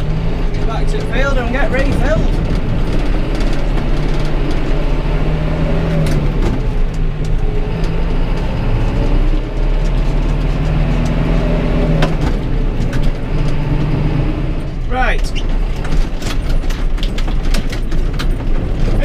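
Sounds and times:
sharp rattles: 0.0 - 8.5, 9.5 - 19.0
tractor diesel engine running: 0.0 - 19.0.

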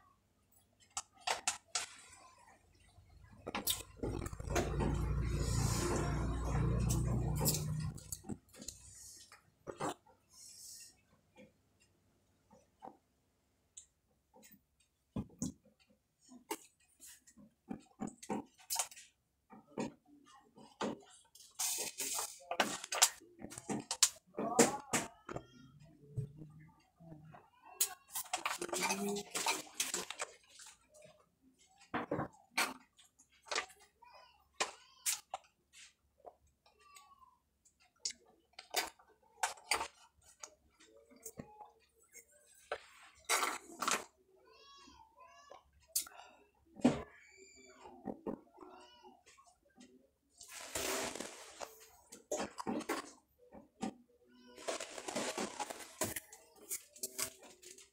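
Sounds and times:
plastic cups crackling: 0.9 - 8.9, 50.4 - 53.2, 54.6 - 57.9
plastic cups crinkling in carton: 50.4 - 53.1, 54.6 - 57.9.

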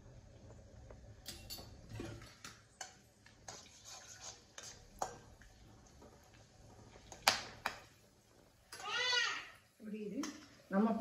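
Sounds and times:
faint oil sizzle: 0.0 - 11.0
metal spoon clicking on pan: 10.2 - 10.5.

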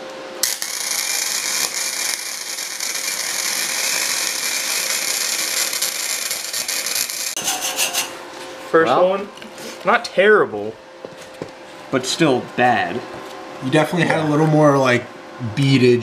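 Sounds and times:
welder sputters: 0.4 - 8.1
welding arc sizzling: 0.4 - 8.2.

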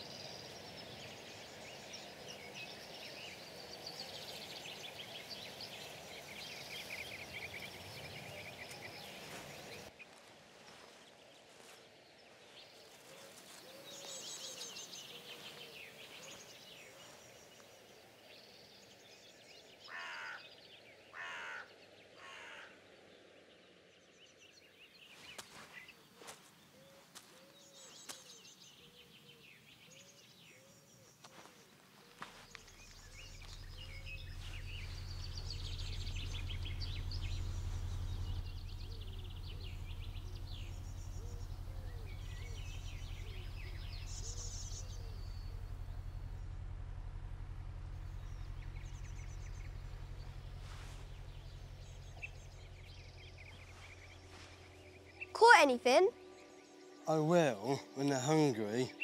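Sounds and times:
small birds chirping: 0.0 - 59.0
crow cawing: 19.9 - 20.5, 21.1 - 22.8
low steady hum: 31.5 - 58.6.

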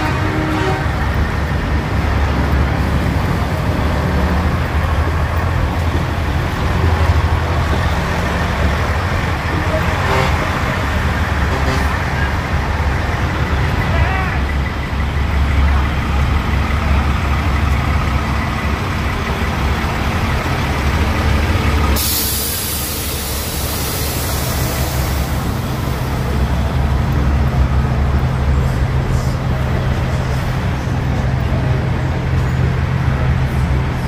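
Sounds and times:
diesel truck engines idling: 0.0 - 34.0
air brakes hissing: 21.8 - 26.3.

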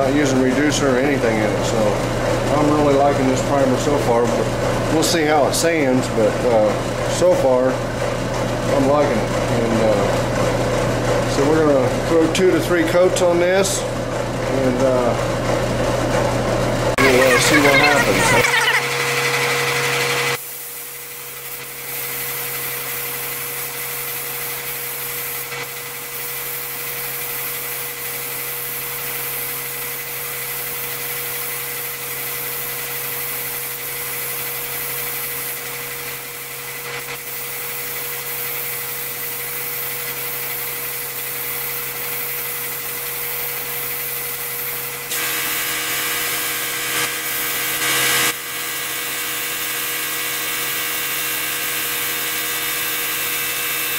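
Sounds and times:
steady hum: 16.8 - 18.9
spray gun air hiss: 20.4 - 53.9.

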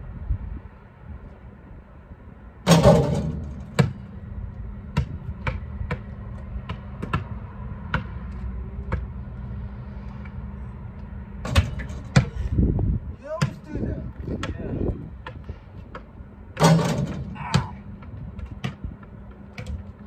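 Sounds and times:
loud rattling bang: 2.7 - 4.0, 16.6 - 17.4
basketball bouncing on asphalt: 2.7 - 12.5, 13.3 - 20.0.

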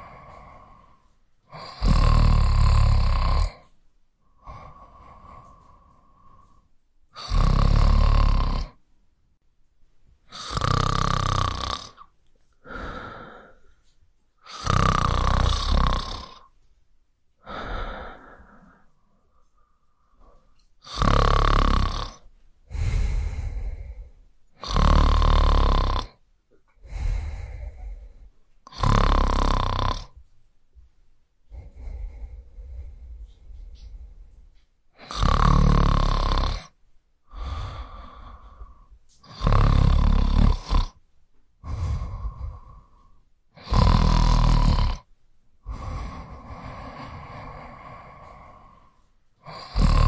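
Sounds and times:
person snoring: 0.0 - 3.7, 4.3 - 8.8, 10.3 - 13.7, 14.4 - 16.5, 17.4 - 26.2, 26.8 - 30.2, 31.5 - 34.4, 35.0 - 41.0, 41.6 - 50.0
soft breaths: 0.0 - 8.0, 11.9 - 16.8, 17.4 - 41.0, 41.6 - 50.0.

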